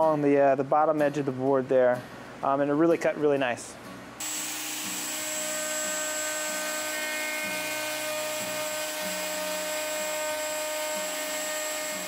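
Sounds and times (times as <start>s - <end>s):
router whining cutting wood: 4.2s - 12.0s.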